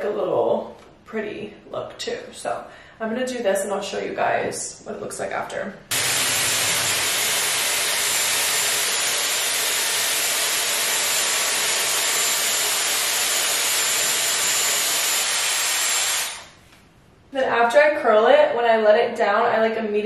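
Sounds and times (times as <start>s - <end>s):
hair styler blowing air: 5.9s - 16.6s.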